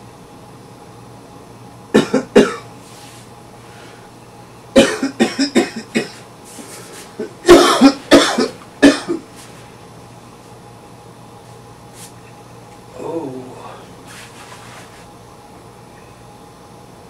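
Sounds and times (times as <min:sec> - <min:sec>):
man coughing hard: 0:01.9 - 0:02.7, 0:04.8 - 0:06.2, 0:07.2 - 0:09.3.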